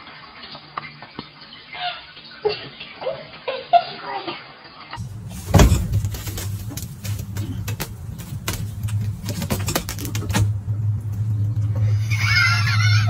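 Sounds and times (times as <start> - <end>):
steady low hum: 5.0 - 13.0.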